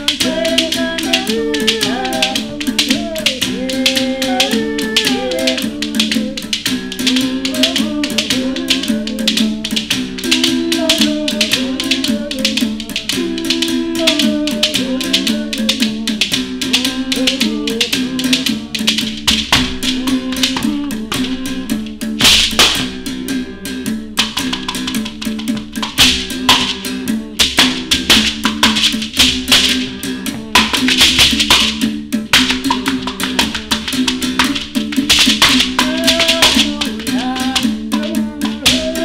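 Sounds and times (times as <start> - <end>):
gourd rattle shaken: 0.0 - 22.8, 24.2 - 39.0
musical bow struck with stick: 0.0 - 39.0.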